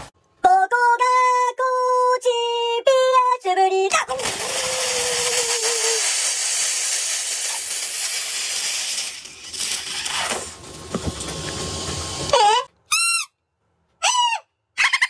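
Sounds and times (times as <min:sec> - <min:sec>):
cola fizzing hiss: 0:04.2 - 0:10.2
toy horn hoot: 0:12.3 - 0:13.3.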